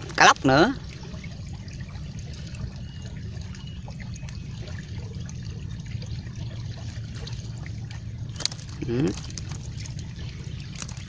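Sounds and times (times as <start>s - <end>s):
low even rumble: 0.0s - 11.0s
water trickling: 0.0s - 11.0s.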